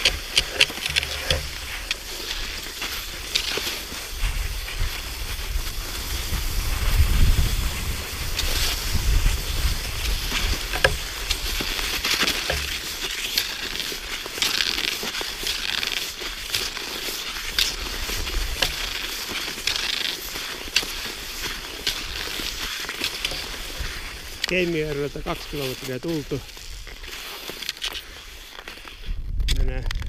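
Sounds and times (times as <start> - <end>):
footsteps crunching through snow: 0.0 - 30.0
wind buffeting microphone: 4.1 - 11.5, 29.0 - 30.0.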